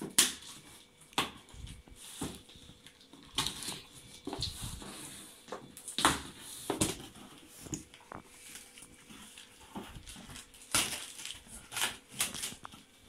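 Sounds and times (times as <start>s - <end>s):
cardboard and plastic rustling: 0.0s - 13.0s.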